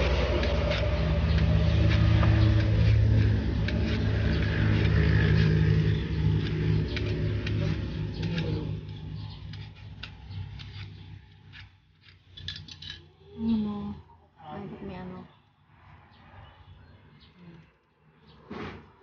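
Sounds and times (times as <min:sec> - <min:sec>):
peeler scraping mango skin: 0:00.0 - 0:12.4
vehicle engine running: 0:00.0 - 0:13.0.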